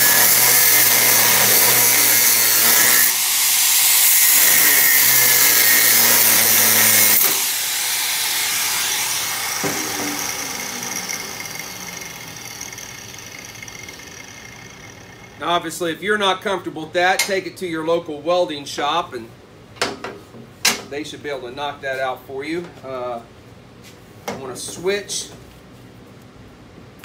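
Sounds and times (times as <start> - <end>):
angle grinder cutting steel: 0.0 - 15.4.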